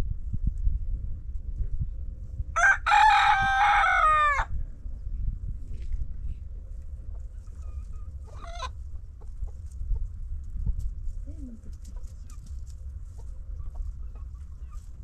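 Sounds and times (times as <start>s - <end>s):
low rumble: 0.0s - 15.0s
chickens clucking: 7.0s - 10.2s, 11.7s - 15.0s.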